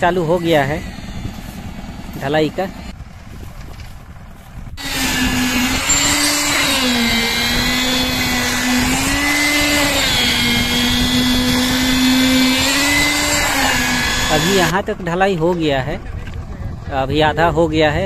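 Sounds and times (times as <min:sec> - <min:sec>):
concrete vibrator motor whine: 0:00.0 - 0:03.0, 0:04.8 - 0:14.8.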